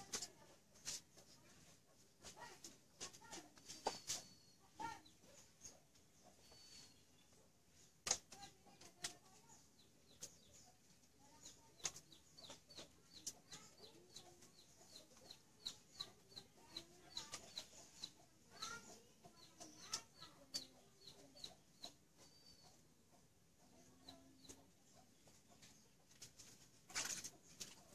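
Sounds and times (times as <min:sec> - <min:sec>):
bird chirping: 0:03.2 - 0:27.9.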